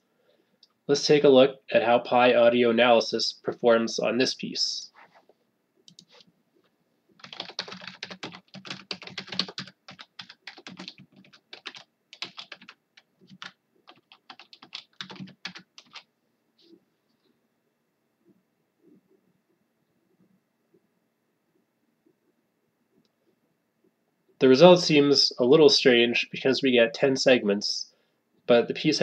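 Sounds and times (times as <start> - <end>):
computer keyboard typing: 5.9 - 6.2, 7.2 - 16.1.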